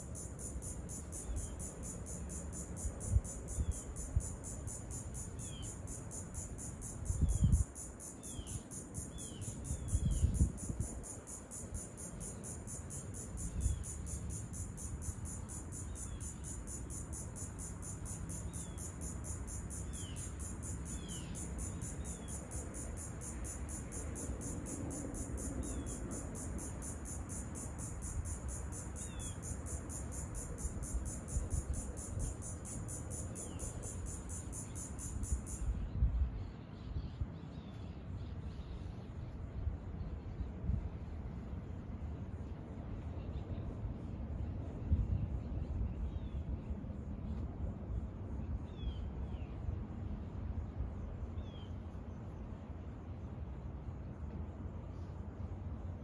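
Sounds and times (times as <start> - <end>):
insect chorus buzzing: 0.0 - 36.6
bird chirps: 5.4 - 5.8, 8.2 - 10.4, 19.7 - 22.4, 29.0 - 29.4.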